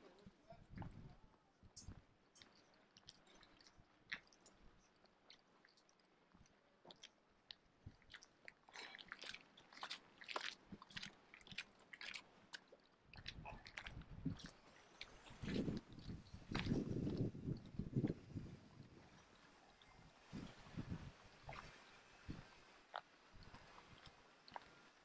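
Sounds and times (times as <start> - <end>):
wind rumbling on microphone: 0.2 - 2.1, 13.1 - 22.6, 23.3 - 24.1.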